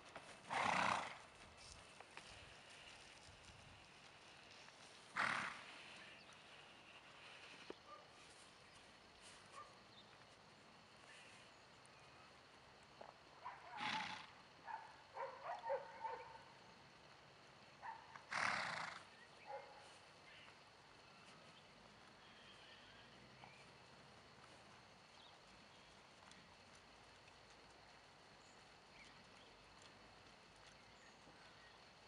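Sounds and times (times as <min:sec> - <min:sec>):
pony snorting: 0:00.4 - 0:01.2, 0:05.1 - 0:06.0, 0:13.8 - 0:14.3, 0:18.3 - 0:19.1.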